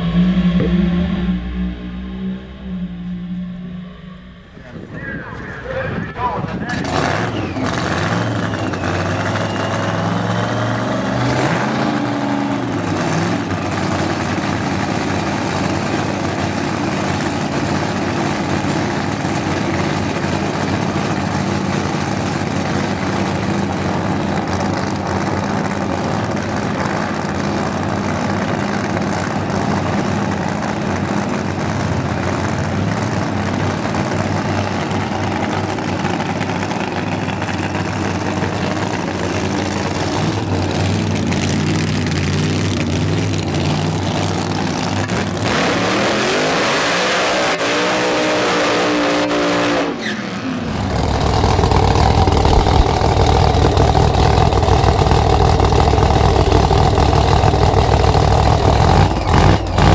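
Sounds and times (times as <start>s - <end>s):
race car engine idling loudly: 0.0s - 11.1s, 12.0s - 45.4s, 50.6s - 59.9s.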